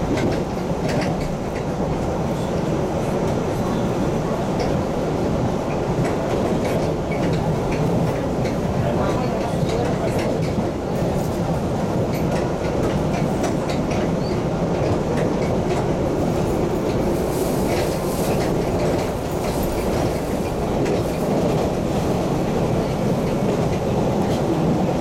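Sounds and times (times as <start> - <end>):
train wheels rumbling on rail: 0.0 - 25.0
clicks and clacks: 0.1 - 2.7, 5.7 - 22.1.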